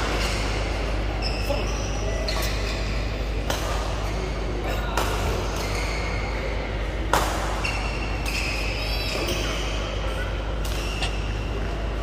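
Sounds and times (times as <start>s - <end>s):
shoes squeaking on court: 0.1s - 4.4s, 5.5s - 6.3s, 7.6s - 11.9s
racket hitting shuttlecock: 7.1s - 8.7s.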